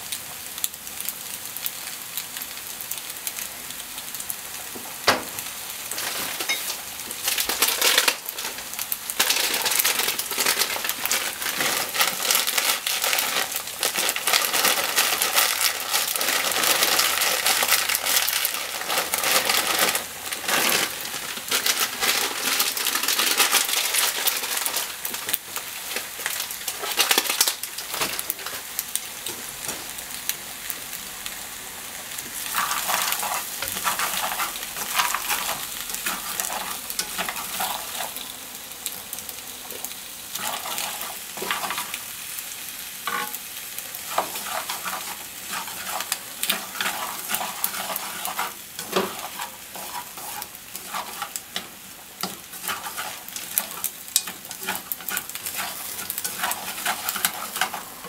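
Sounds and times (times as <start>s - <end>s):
food sizzling in a frying pan: 0.0s - 58.0s
chopsticks scraping a pan: 5.9s - 28.7s, 32.5s - 38.2s, 40.3s - 42.0s, 43.0s - 58.0s.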